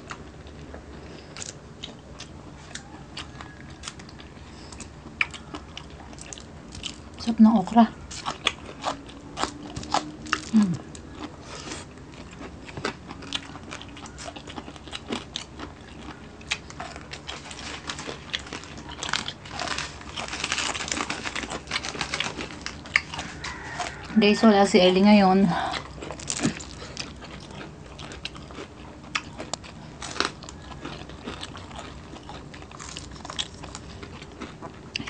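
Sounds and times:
chewing with sharp crunches: 0:00.0 - 0:35.0.

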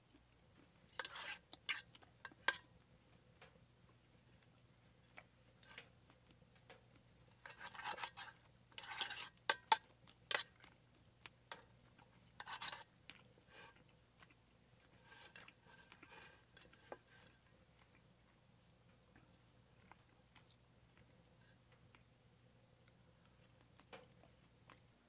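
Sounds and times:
cutlery clicking on pan: 0:00.9 - 0:02.7, 0:07.4 - 0:10.5, 0:12.4 - 0:12.9
knife and fork scraping a pan: 0:00.9 - 0:02.7, 0:07.4 - 0:10.6, 0:12.4 - 0:12.9, 0:13.5 - 0:13.8, 0:15.0 - 0:17.4.

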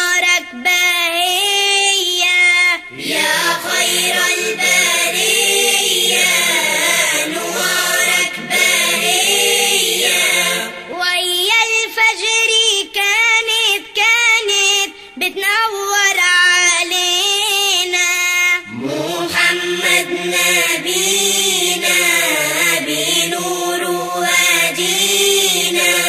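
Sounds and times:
group singing: 0:01.8 - 0:11.5, 0:18.0 - 0:26.0.

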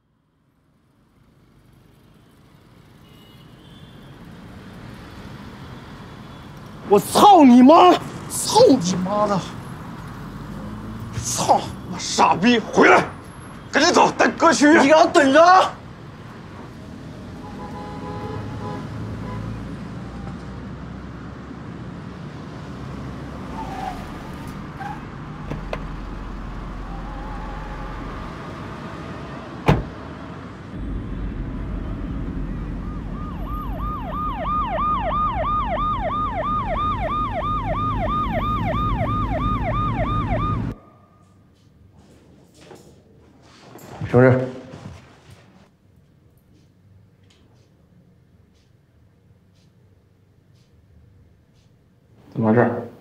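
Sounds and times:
car engine rumbling: 0:23.4 - 0:40.8
police siren yelping: 0:26.6 - 0:28.5, 0:32.7 - 0:40.9
car door shutting: 0:29.6 - 0:30.0.

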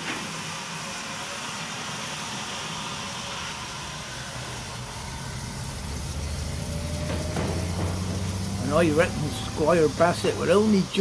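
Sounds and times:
steam train hiss: 0:00.0 - 0:11.0
low engine hum: 0:03.3 - 0:11.0.

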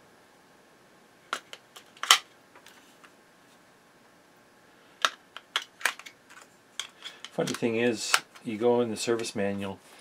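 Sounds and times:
plastic clicks of batteries: 0:05.0 - 0:08.5.

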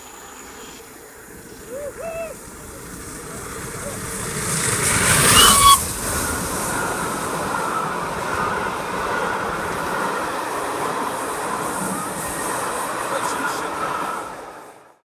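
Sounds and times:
steam locomotive passing: 0:00.0 - 0:15.0
coaches rolling by rumble: 0:01.4 - 0:14.5
wavering wheel squeal: 0:01.5 - 0:10.1.

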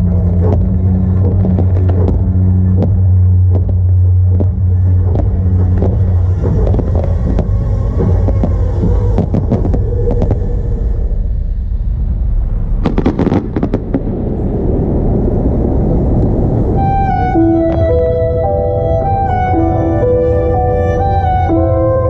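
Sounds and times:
fireworks crackling: 0:00.0 - 0:10.5, 0:12.8 - 0:18.1
fireworks sharp bangs: 0:00.0 - 0:10.6, 0:12.7 - 0:18.0
fireworks shell bursts rumbling: 0:00.0 - 0:10.6, 0:11.8 - 0:15.0.

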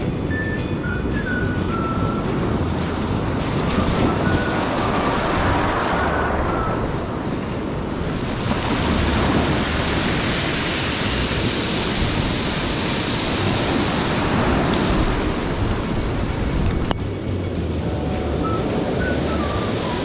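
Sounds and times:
wind on microphone: 0:00.0 - 0:20.0
surf breaking on beach: 0:01.7 - 0:16.9.

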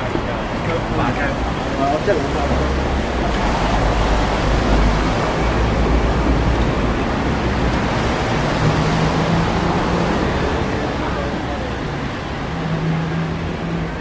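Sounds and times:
deep traffic rumble: 0:00.0 - 0:14.0
rain hissing on street: 0:00.0 - 0:14.0.

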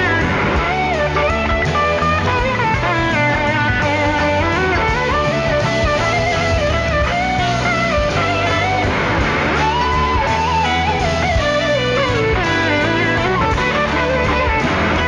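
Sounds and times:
rock band music: 0:00.0 - 0:15.0
sliding electric guitar lead: 0:00.0 - 0:15.0.

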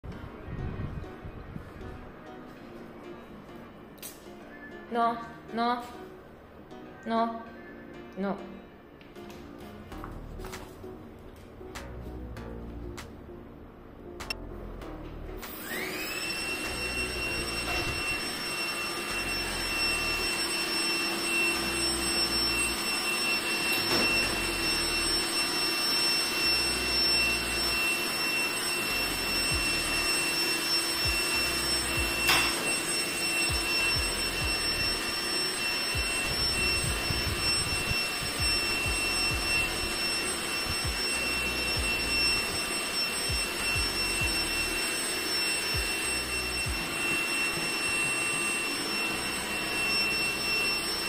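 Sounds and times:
robot vacuum cleaner whining: 0:15.4 - 0:51.0.

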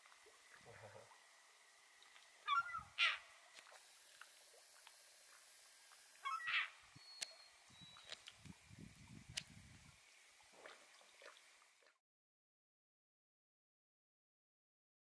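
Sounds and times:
gull squawking: 0:02.5 - 0:03.3, 0:06.2 - 0:06.8.

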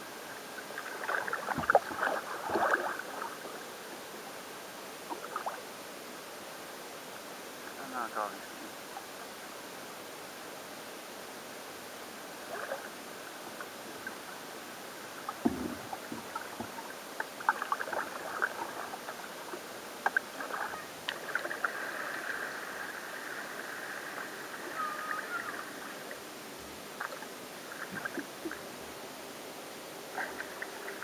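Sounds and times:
paddle splashing in water: 0:00.8 - 0:03.4, 0:15.2 - 0:25.7
low thump: 0:15.4 - 0:16.8.

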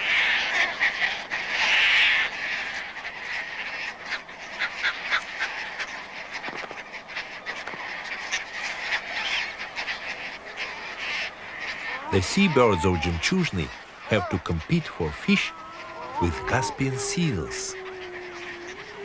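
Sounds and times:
terns calling harshly: 0:07.6 - 0:19.0.

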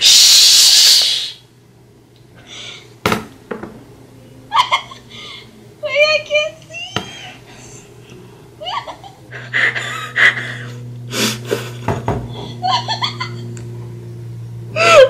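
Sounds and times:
woman giggling: 0:04.5 - 0:05.5, 0:06.8 - 0:10.8, 0:11.4 - 0:13.5.

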